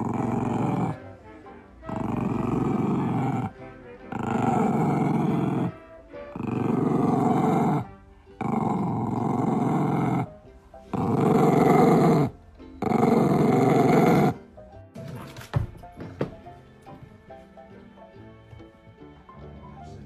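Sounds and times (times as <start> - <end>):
kitten growling: 0.0 - 1.2, 1.8 - 14.4.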